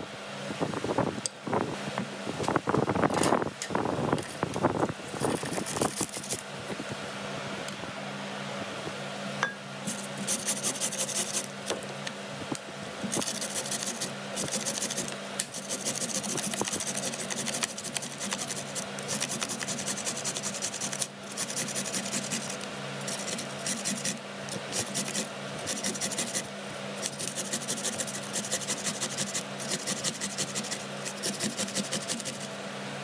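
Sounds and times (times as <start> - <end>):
steady low hum: 0.0 - 33.0
carrot rasping on metal grater: 5.2 - 6.4, 9.9 - 11.5, 13.1 - 32.6.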